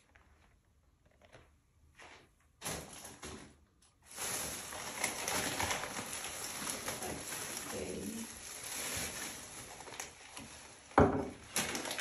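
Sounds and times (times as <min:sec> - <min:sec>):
plastic bag rustling: 0:02.0 - 0:12.0
knock: 0:11.0 - 0:11.3.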